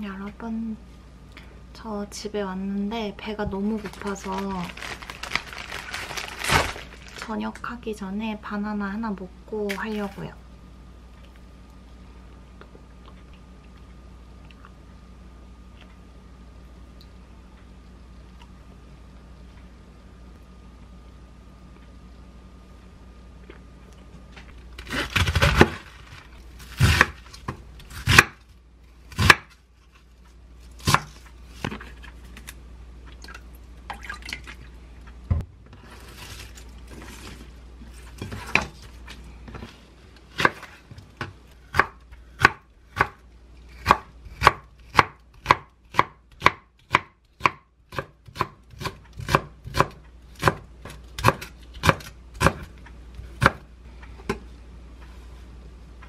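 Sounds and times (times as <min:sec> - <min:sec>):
knife chopping on wooden board: 0:28.0 - 0:28.4, 0:40.4 - 0:43.2, 0:43.8 - 0:52.7, 0:53.4 - 0:53.6.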